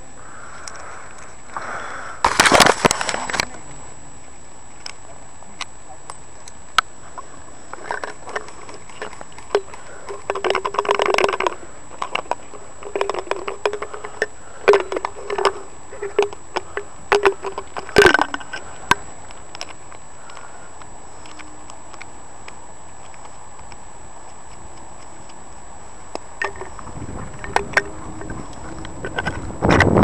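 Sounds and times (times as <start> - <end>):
scattered clicks: 7.7 - 25.4, 26.1 - 30.0.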